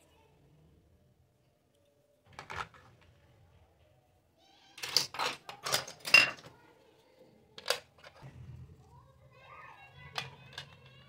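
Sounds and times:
plastic toy pieces clacking: 4.8 - 6.5, 7.6 - 8.2, 10.1 - 11.0.

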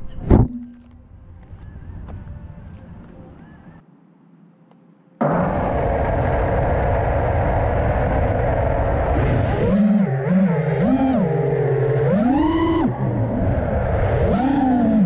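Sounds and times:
quadcopter motors whining: 5.2 - 15.0.

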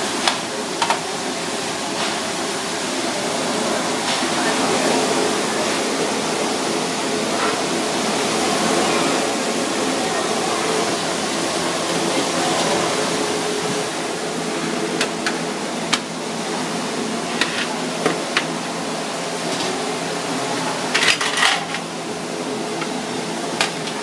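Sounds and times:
steamer hissing: 0.0 - 21.0
metal kitchenware clinking: 21.0 - 21.8.

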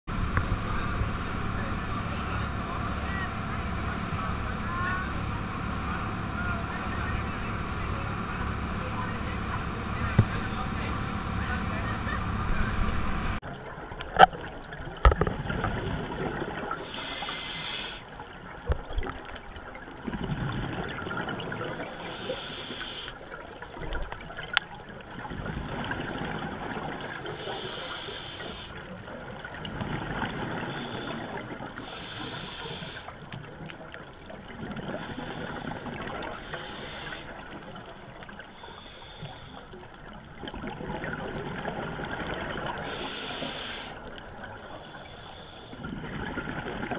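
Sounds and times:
muffled underwater bed: 0.1 - 46.9
scuba regulator breathing: 16.8 - 18.1, 21.2 - 23.2, 27.2 - 28.8, 30.4 - 33.2, 34.9 - 37.6, 38.3 - 39.8, 42.8 - 45.9.

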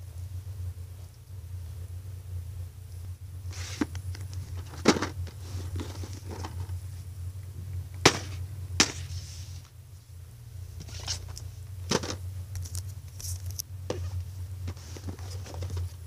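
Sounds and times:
steady low hum: 0.0 - 16.0
rustling of phone handling: 3.6 - 6.8.

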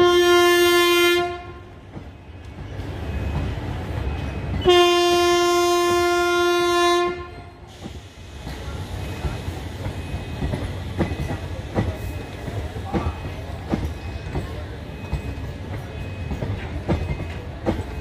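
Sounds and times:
train horn blast: 0.0 - 1.8, 4.6 - 7.6
train wheels rumbling on track: 0.0 - 18.0.

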